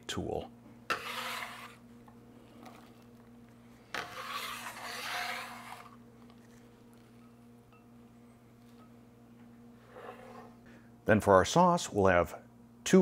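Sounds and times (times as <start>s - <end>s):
scraper scraping wooden cutting board: 0.9s - 1.8s, 3.9s - 6.0s.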